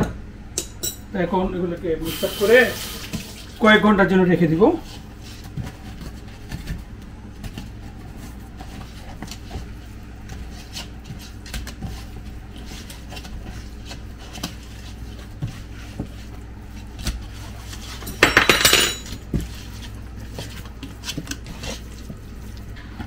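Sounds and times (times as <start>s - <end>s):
steady low hum: 0.0s - 23.0s
hands mixing fish in bowl: 2.4s - 23.0s
tap water rushing: 2.6s - 3.6s.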